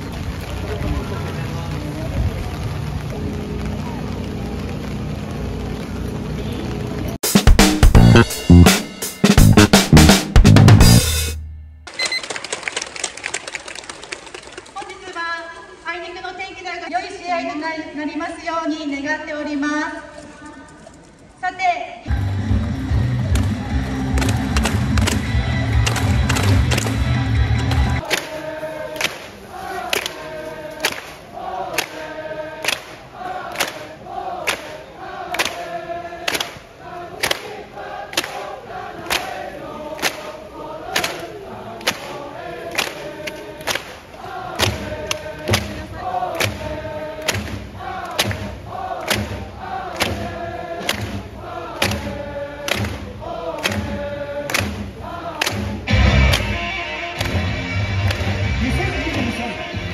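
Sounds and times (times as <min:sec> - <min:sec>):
steady drum beat: 0:07.2 - 0:11.8
crowd chanting: 0:22.1 - 0:59.9.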